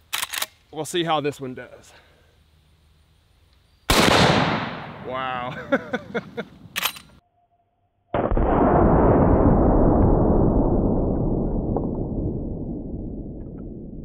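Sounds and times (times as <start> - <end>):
sharp clicks: 0.1 - 0.6
deep slowed-down rifle shot boom: 8.1 - 14.0.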